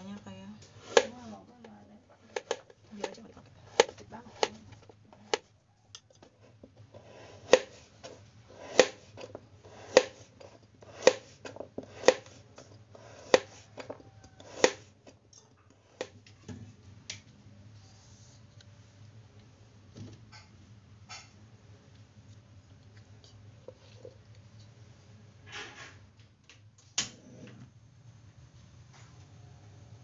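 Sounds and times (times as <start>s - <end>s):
knife slicing carrot on board: 0.8s - 1.2s, 7.0s - 14.9s.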